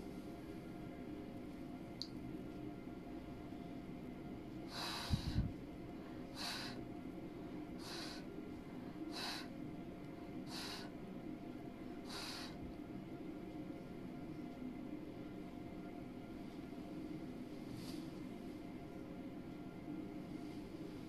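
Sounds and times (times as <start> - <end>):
puffs of breath: 4.6 - 6.9, 7.8 - 9.6, 10.4 - 11.0, 12.0 - 12.7, 17.6 - 18.2.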